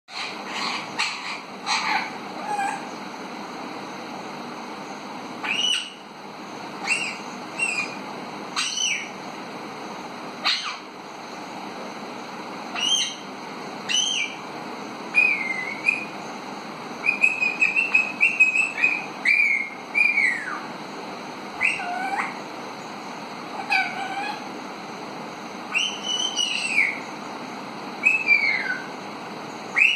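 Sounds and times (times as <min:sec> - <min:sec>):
parakeet whistles and calls: 0:00.1 - 0:03.0, 0:05.4 - 0:06.1, 0:06.8 - 0:08.0, 0:08.6 - 0:09.2, 0:10.4 - 0:10.9, 0:12.7 - 0:13.3, 0:13.9 - 0:14.4, 0:15.1 - 0:16.2, 0:17.0 - 0:20.7, 0:21.6 - 0:22.4, 0:23.6 - 0:24.5, 0:25.7 - 0:27.1, 0:28.0 - 0:29.0, 0:29.7 - 0:29.9.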